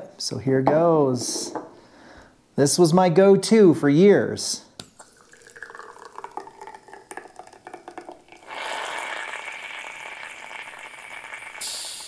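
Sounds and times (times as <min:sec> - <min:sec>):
coffee dripping: 0:04.8 - 0:12.0
espresso sputtering hiss: 0:08.3 - 0:12.0.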